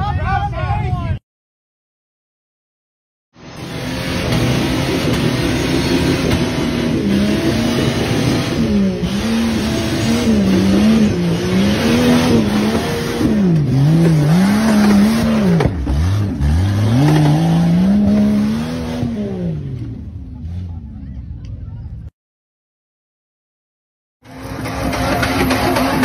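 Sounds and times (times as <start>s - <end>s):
tires spinning on loose dirt: 3.4s - 21.0s, 24.2s - 26.0s
buggy engine revving: 3.4s - 21.4s, 24.2s - 26.0s.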